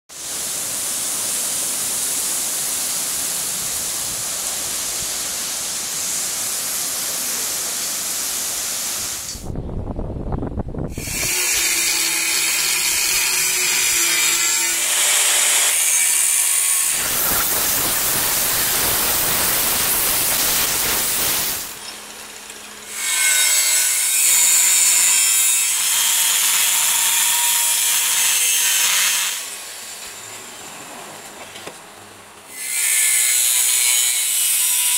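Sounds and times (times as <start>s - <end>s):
steady high hiss: 0.1s - 9.5s, 16.9s - 22.0s
angle grinder cutting steel: 10.9s - 30.0s, 32.5s - 34.9s.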